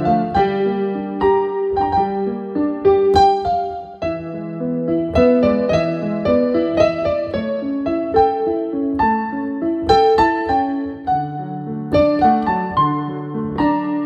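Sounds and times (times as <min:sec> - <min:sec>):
digital piano playing: 0:00.0 - 0:14.0.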